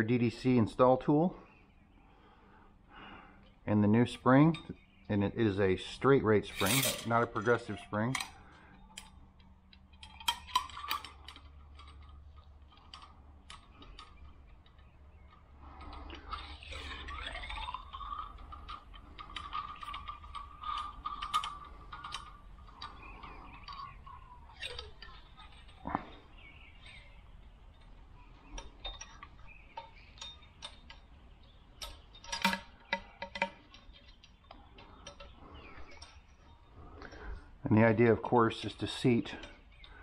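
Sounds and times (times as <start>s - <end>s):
metal parts clinking: 6.4s - 36.3s.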